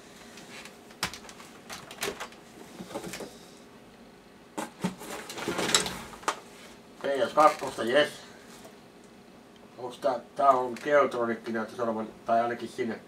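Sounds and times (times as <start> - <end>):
paper and plastic rustling: 7.2 - 7.8.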